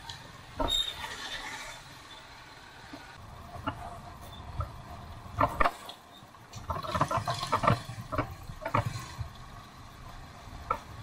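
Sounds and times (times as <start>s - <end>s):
knocks and rattles from bumps: 6.5s - 9.5s.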